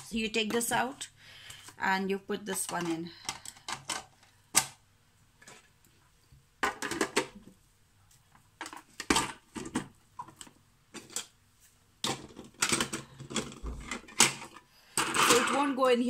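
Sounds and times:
plastic parts knocking and clicking: 2.5s - 4.8s, 6.6s - 7.5s, 8.6s - 11.3s, 12.0s - 15.8s.

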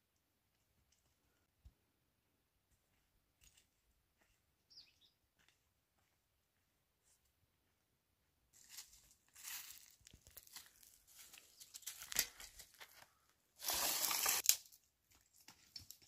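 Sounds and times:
twigs and leaves crunching: 8.6s - 16.0s
loud tearing rustle: 13.6s - 14.6s.

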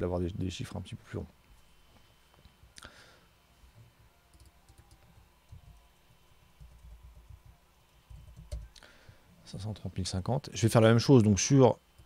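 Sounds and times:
keyboard typing: 4.3s - 6.0s, 6.6s - 8.8s.

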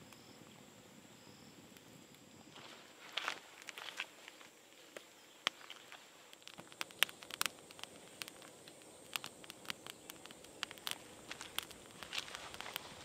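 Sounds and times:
wooden sticks clicking: 5.5s - 12.9s.

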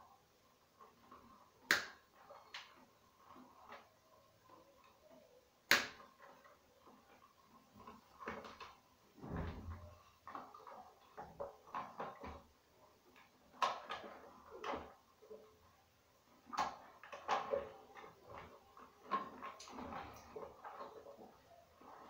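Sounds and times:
plastic knocking and scraping: 5.7s - 15.6s, 16.3s - 22.0s.

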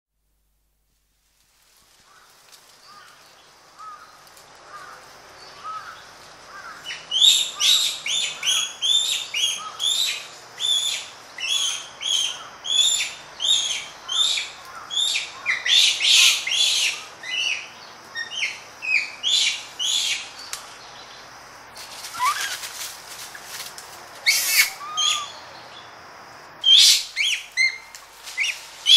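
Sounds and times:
faint short monkey calls: 22.1s - 22.6s, 24.2s - 25.4s
monkeys screaming: 22.1s - 22.6s, 24.2s - 25.4s.

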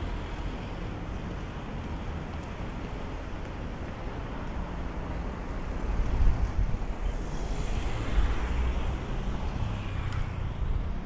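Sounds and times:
wind buffeting microphone: 5.4s - 11.0s
car passing: 6.7s - 11.0s.

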